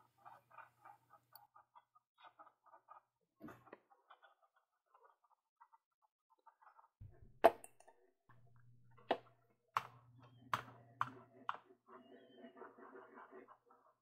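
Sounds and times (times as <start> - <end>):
mouse rubbing on mouse pad: 11.1 - 14.0.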